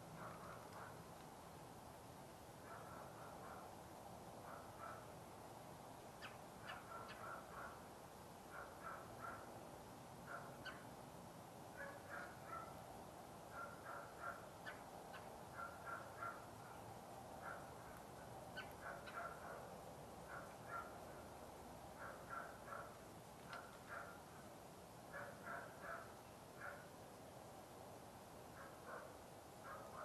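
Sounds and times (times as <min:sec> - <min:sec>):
faint harsh bird calls: 0:06.2 - 0:07.8, 0:10.3 - 0:10.9, 0:13.5 - 0:16.8, 0:17.4 - 0:19.6.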